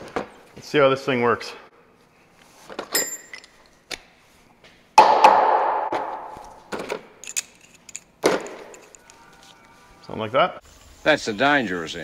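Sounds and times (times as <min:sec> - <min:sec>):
metal tools clinking: 0:02.9 - 0:03.8, 0:07.2 - 0:09.3.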